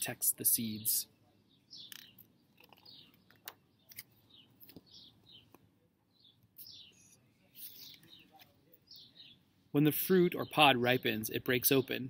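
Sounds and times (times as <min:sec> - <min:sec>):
bird chirps: 0:00.6 - 0:09.6.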